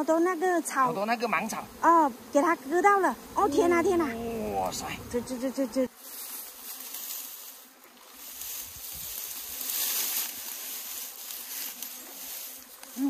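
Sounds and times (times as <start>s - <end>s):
ferns and undergrowth rustling: 5.9s - 13.0s.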